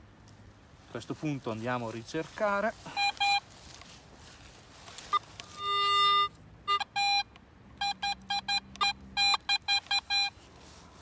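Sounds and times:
metal detector beeps: 0:02.9 - 0:03.5, 0:05.1 - 0:10.4.

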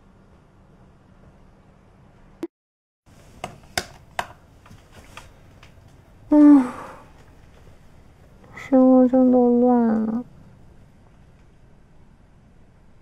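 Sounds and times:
person humming: 0:06.3 - 0:07.1.

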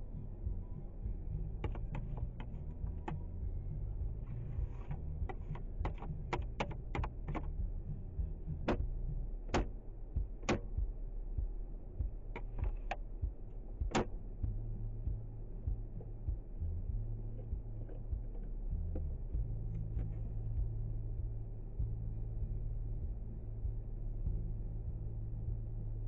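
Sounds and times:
car cabin rumble: 0:00.0 - 0:26.0
sharp clicks and taps: 0:01.6 - 0:03.3, 0:04.8 - 0:07.7, 0:09.5 - 0:10.9, 0:12.0 - 0:13.0, 0:13.8 - 0:14.6.

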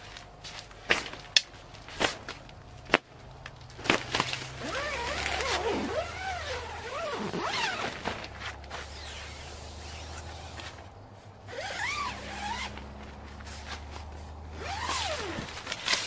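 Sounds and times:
tent fabric rustling: 0:03.7 - 0:16.0
tent zipper being pulled: 0:04.4 - 0:10.8, 0:11.5 - 0:13.9, 0:14.5 - 0:16.0.

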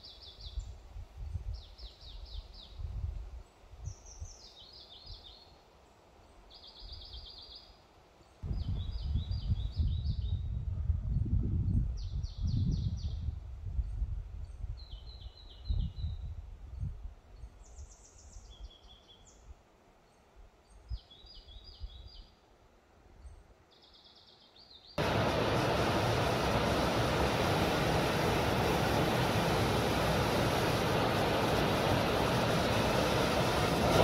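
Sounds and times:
waterfall pouring into pool: 0:25.0 - 0:34.0.

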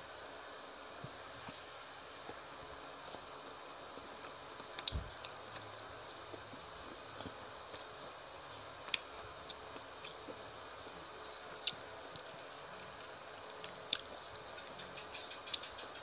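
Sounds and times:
steady hiss: 0:00.0 - 0:16.0
person chewing with wet mouth noises: 0:11.6 - 0:15.9.

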